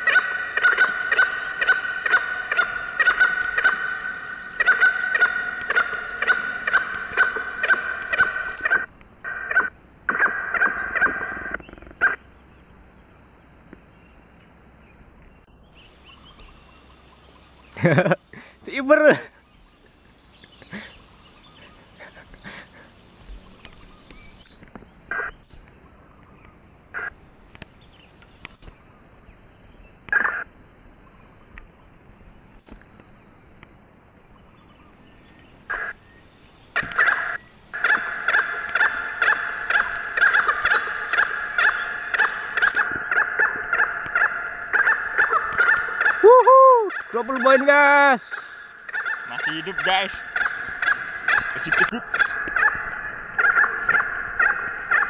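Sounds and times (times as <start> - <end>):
junglefowl calling: 0.0 - 12.2, 25.1 - 26.0, 26.9 - 27.2, 30.1 - 30.5, 35.6 - 36.1, 36.7 - 55.0.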